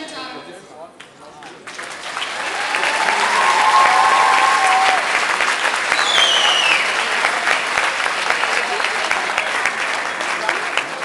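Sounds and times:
audience clapping: 1.5 - 11.0
long held cheer: 2.2 - 9.1
whistle falling in pitch: 6.0 - 6.8.

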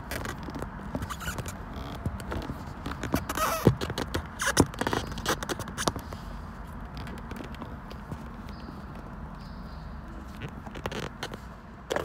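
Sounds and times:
handling noise rustling: 0.0 - 12.0
small knocks: 0.1 - 6.2.

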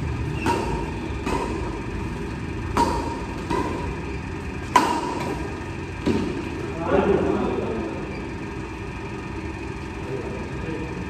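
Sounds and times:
rackets hitting shuttlecock: 0.0 - 6.6.

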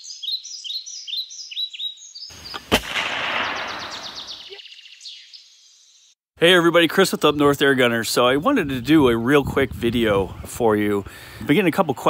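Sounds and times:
songbird chirping: 0.0 - 8.4
sharp bang: 2.5 - 4.5.

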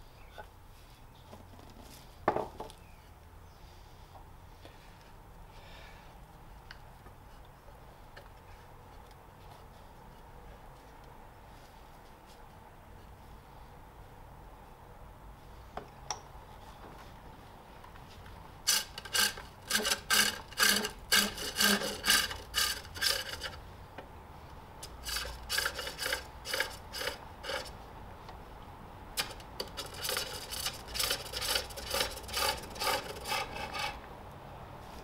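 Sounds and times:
lathe tool scraping wood: 18.7 - 23.6, 24.8 - 27.8, 29.2 - 34.0.

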